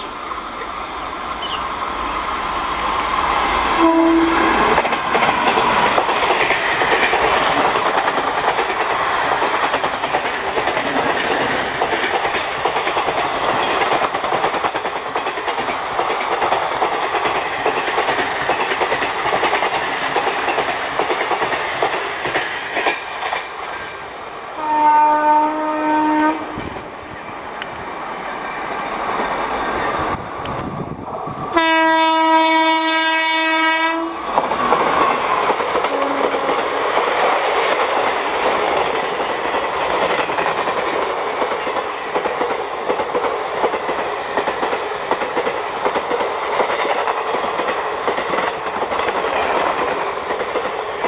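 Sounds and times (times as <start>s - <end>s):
train passing at speed: 0.0s - 51.0s
train horn: 3.8s - 4.7s, 24.6s - 26.7s, 31.5s - 34.2s, 35.9s - 36.6s
clickety-clack over rail joints: 3.8s - 27.0s, 30.1s - 51.0s.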